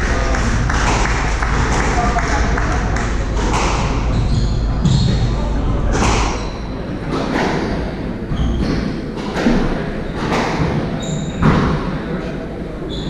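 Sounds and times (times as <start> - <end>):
shoe squeaks: 4.1 - 5.2, 6.2 - 6.7, 8.3 - 9.0, 11.0 - 11.5.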